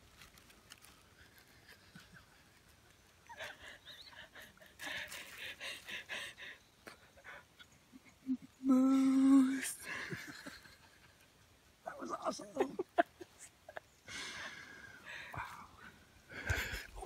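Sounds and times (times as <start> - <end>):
woman humming: 8.2 - 9.7
woman laughing: 9.8 - 11.0, 12.1 - 13.9.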